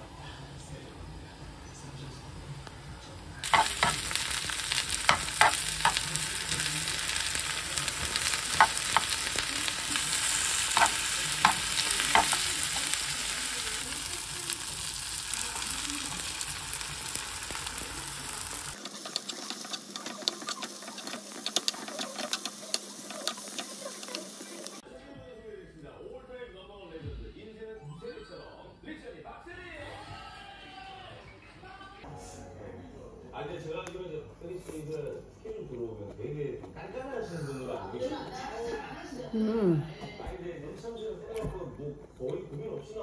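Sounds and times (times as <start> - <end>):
vegetables sizzling in oil: 3.3 - 24.8.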